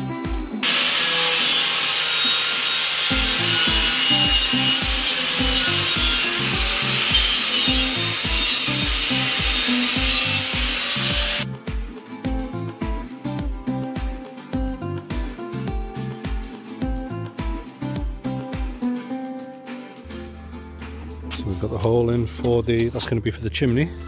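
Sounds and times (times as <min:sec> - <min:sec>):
angle grinder grinding steel: 0:00.4 - 0:11.5.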